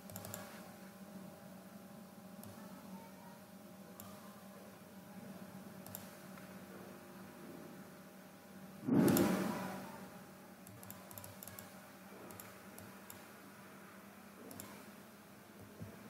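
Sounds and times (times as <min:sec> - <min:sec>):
computer mouse clicks: 0:00.0 - 0:00.6, 0:02.4 - 0:02.6, 0:04.0 - 0:04.2, 0:05.8 - 0:06.5, 0:09.0 - 0:09.4, 0:10.6 - 0:13.3, 0:14.4 - 0:14.9
low electrical hum: 0:00.0 - 0:16.0.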